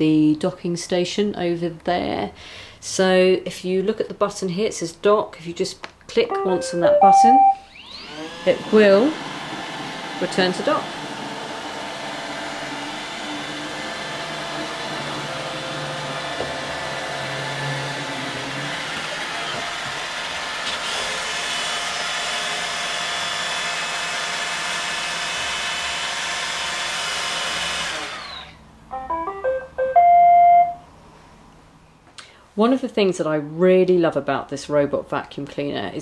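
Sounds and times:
electronic docking chime: 6.3s - 7.7s, 28.9s - 30.8s.

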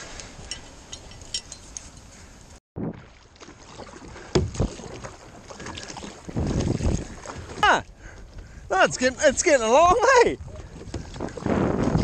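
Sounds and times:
paddle splashing in water: 2.8s - 12.0s
wind on the microphone: 5.6s - 12.0s.

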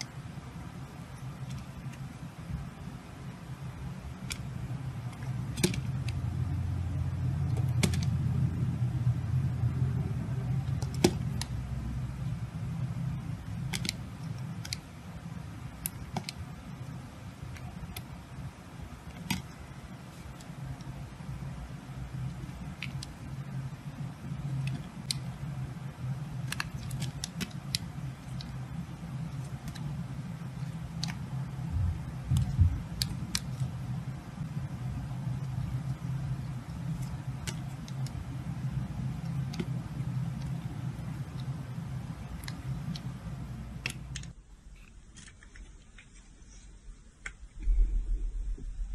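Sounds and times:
low hum: 0.0s - 48.9s
low rumble: 4.7s - 13.7s, 31.6s - 33.2s, 46.9s - 48.9s.

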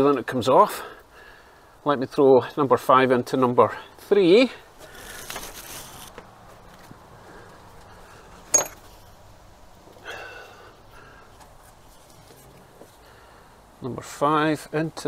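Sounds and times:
rustle of handling parts: 4.0s - 9.2s, 11.3s - 13.1s.

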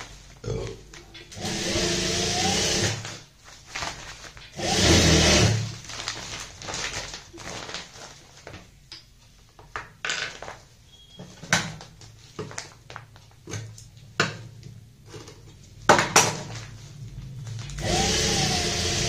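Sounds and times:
cloth bag rustling and crinkling: 3.1s - 4.6s, 5.6s - 8.8s.

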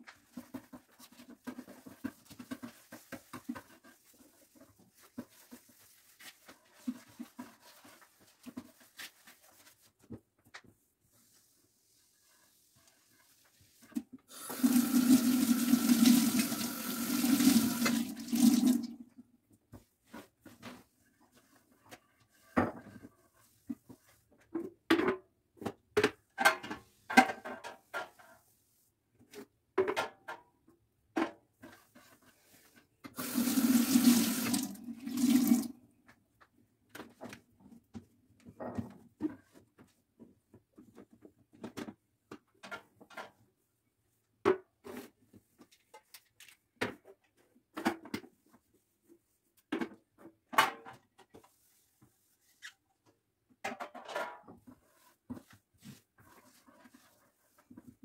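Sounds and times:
water tap running: 14.3s - 19.0s, 33.2s - 35.7s.

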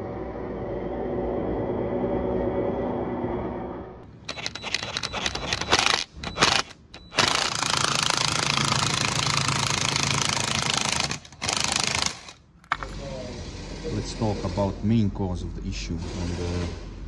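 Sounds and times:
impact wrench hammering: 4.3s - 12.9s.

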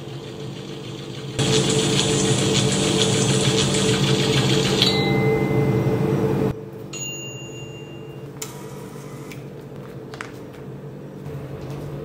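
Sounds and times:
loud electric hum: 0.0s - 12.0s
quieter hum: 0.0s - 12.0s
high ringing electronic tones: 4.6s - 9.3s.

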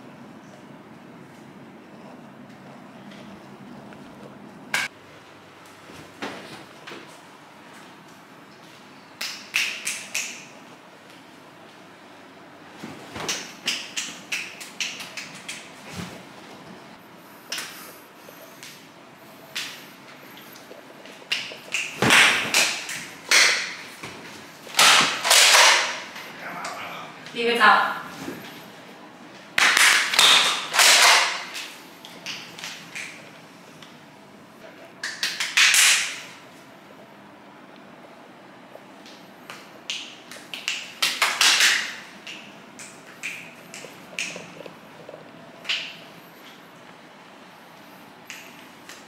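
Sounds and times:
toy dart blaster shots: 24.8s - 26.0s.

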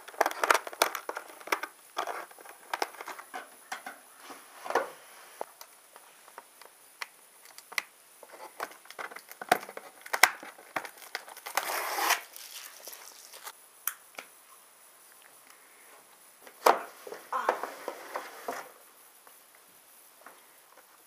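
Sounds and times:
plastic packaging crinkling: 0.0s - 3.3s, 7.4s - 13.5s.

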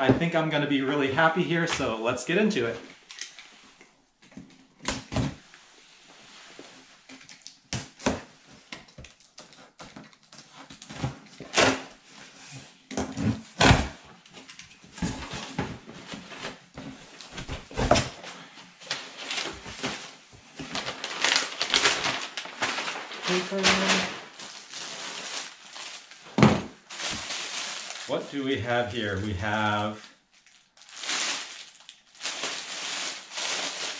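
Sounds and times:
packing paper crackling and rustling: 14.2s - 33.9s.

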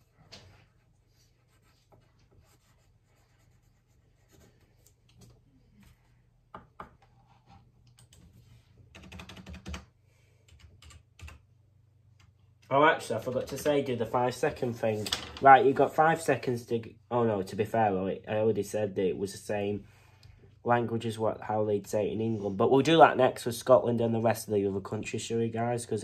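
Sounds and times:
typing on computer keyboard: 8.9s - 11.4s.

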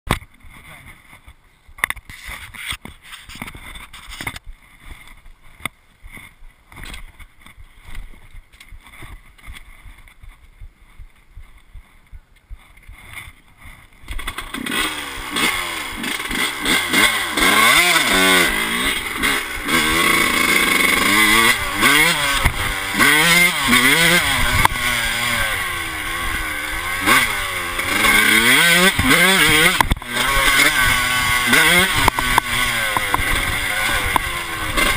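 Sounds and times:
two-stroke motorcycle engine revving: 12.9s - 34.9s.

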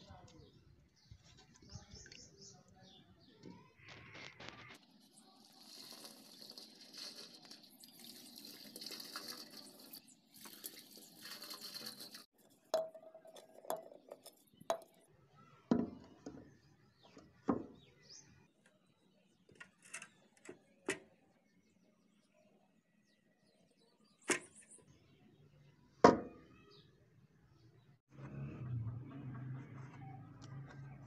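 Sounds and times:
water pouring into a drain: 4.8s - 15.0s.

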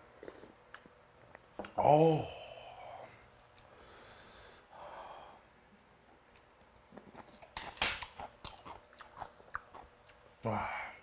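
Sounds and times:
chewing porridge: 6.3s - 10.3s.

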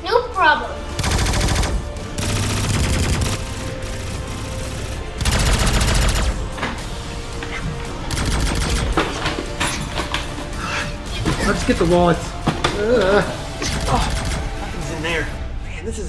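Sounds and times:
background music: 0.0s - 16.0s
toy blaster fire: 1.0s - 3.6s
machine-gun sound effects: 1.0s - 6.4s, 8.1s - 9.1s, 13.6s - 14.6s.

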